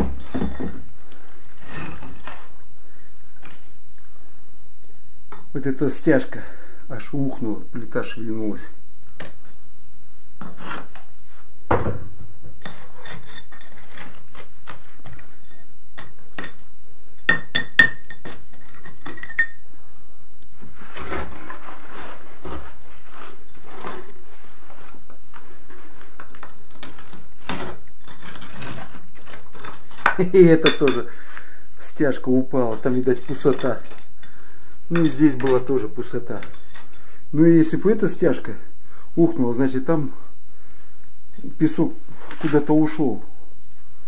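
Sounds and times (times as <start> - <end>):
rubble clinking: 17.2 - 19.6
metallic ring: 19.2 - 19.6
rubble sliding: 20.6 - 30.7.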